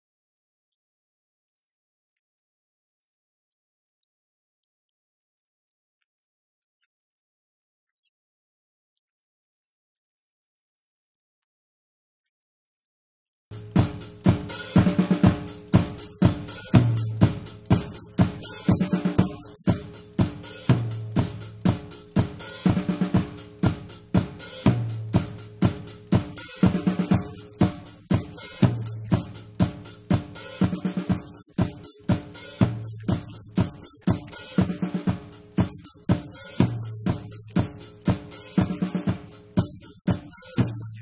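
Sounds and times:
drum kit playing a steady beat: 13.5 - 41.0.

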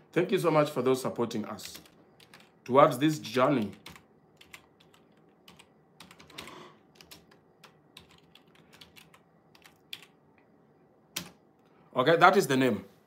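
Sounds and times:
computer keyboard typing: 1.6 - 2.8, 3.4 - 10.2, 11.1 - 11.4.

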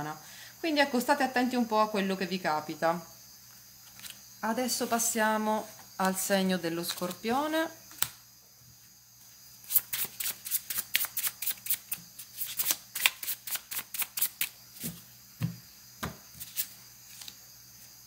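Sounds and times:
cards being shuffled: 3.8 - 4.2, 6.9 - 7.2, 7.9 - 8.2, 9.6 - 15.0, 16.4 - 17.4.

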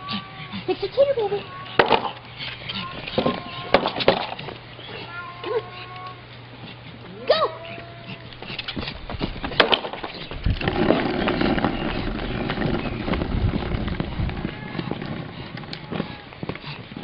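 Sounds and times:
skateboard wheels rolling on asphalt: 8.8 - 17.0.

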